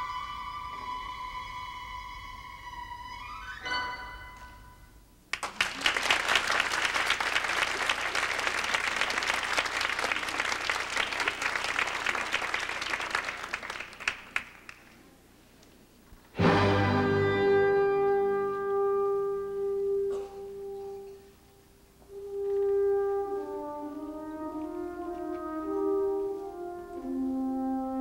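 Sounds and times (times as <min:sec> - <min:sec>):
audience applauding: 0:05.3 - 0:15.0
orchestral music: 0:16.4 - 0:21.1, 0:22.1 - 0:28.0
loud held brass note: 0:16.4 - 0:21.2.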